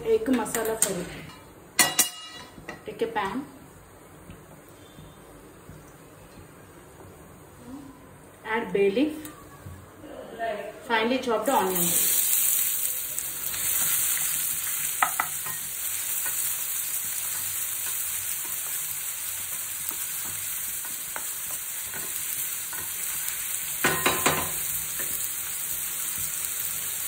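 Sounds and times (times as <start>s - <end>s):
onions sizzling in hot oil: 11.4s - 27.0s.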